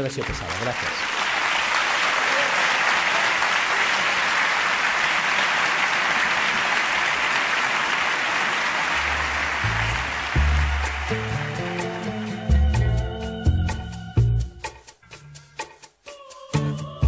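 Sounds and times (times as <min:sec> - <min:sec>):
audience applauding: 0:00.0 - 0:12.2
music: 0:09.0 - 0:17.0.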